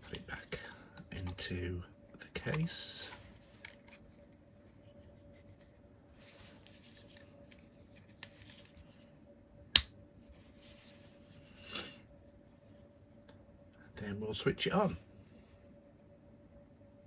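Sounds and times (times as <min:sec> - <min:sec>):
handling rustle: 0:02.4 - 0:09.1.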